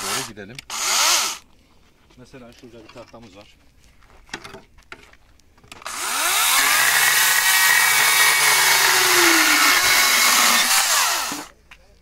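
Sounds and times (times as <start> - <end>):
electric chainsaw cutting wood: 0.0 - 1.4, 5.9 - 11.5.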